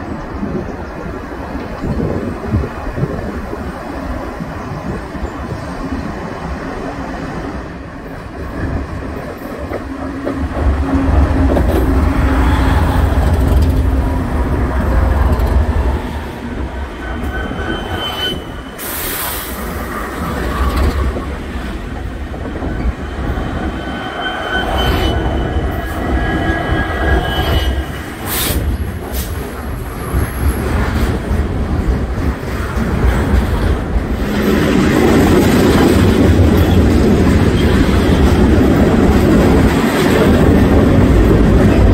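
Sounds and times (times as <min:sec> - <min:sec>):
locomotives rumbling: 0:00.0 - 0:18.8
wheels squealing: 0:14.9 - 0:19.5, 0:22.6 - 0:28.8.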